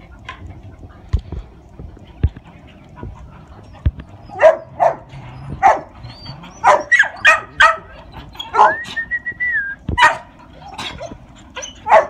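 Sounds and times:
dog whining: 3.6s - 9.4s, 10.6s - 12.0s
dog barking: 4.3s - 5.9s, 6.6s - 7.9s, 8.5s - 8.8s, 10.0s - 10.3s.

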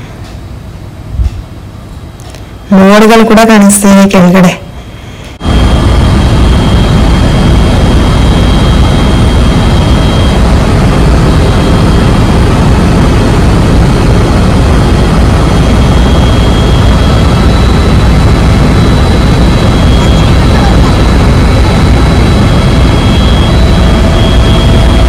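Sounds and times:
thin high whine: 0.0s - 25.0s
helicopter rotor and engine noise: 5.0s - 25.0s.

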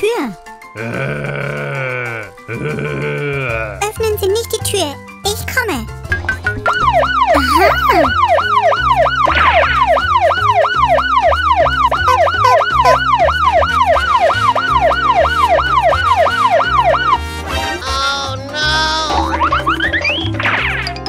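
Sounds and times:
police siren wailing: 6.7s - 17.4s.

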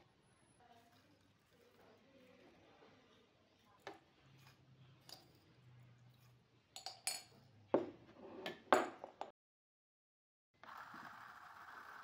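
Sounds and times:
ceramic cup clinking on steel jug: 6.8s - 7.3s
milk frother motor whirring: 10.6s - 12.0s.

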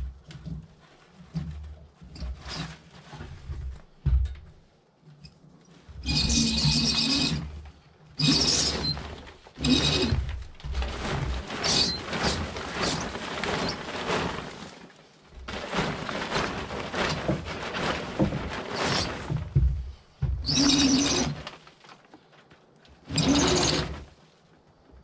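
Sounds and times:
plastic tarp crinkling: 8.2s - 24.5s.

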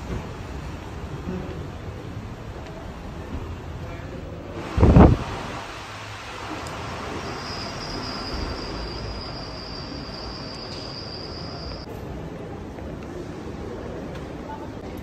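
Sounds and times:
high-pitched whine: 5.4s - 11.9s.

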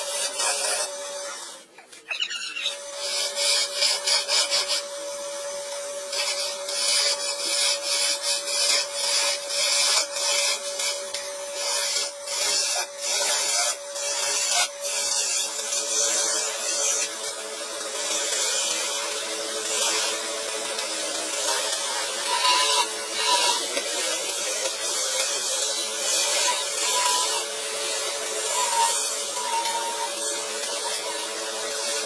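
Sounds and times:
wood lathe humming: 2.8s - 32.0s
chisel scraping wood: 19.7s - 31.2s.

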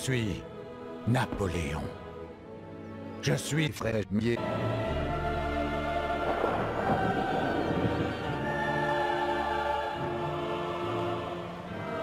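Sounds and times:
dramatic orchestral music: 0.0s - 12.0s
choir holding chords: 4.4s - 12.0s.

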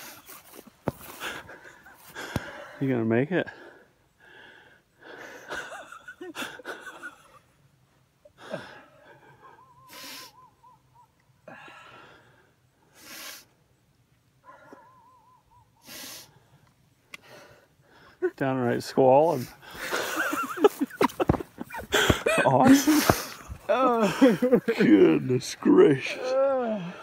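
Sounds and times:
man sniffing and gasping: 11.5s - 13.6s, 15.8s - 16.6s
man wailing: 21.8s - 25.2s, 25.8s - 27.0s.

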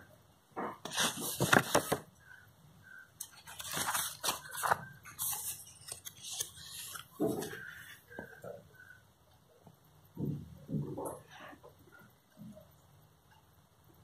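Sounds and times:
paper pages rustling and flapping: 0.8s - 2.1s, 3.2s - 8.3s.

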